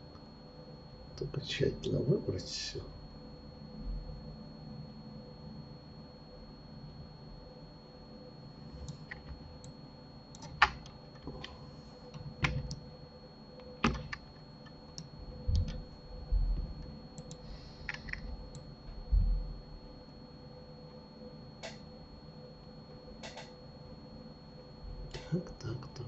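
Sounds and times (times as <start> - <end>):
faint steady hum: 0.0 - 26.0
dull low thumps: 15.4 - 16.8.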